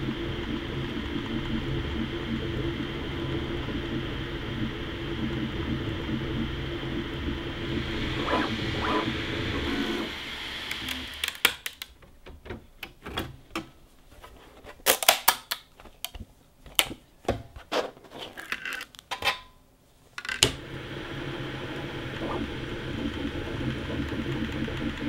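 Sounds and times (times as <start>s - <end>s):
steady machine hum: 0.0s - 11.5s, 20.5s - 25.0s.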